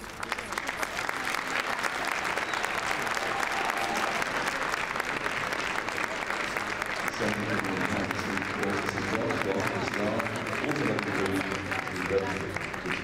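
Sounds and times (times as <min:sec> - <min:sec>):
crowd applauding: 0:00.0 - 0:13.0.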